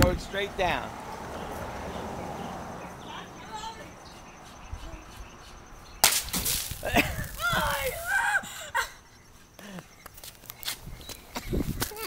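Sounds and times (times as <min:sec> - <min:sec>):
hiss of spraying soda: 0:06.7 - 0:08.2
people shouting excitedly: 0:07.3 - 0:08.6.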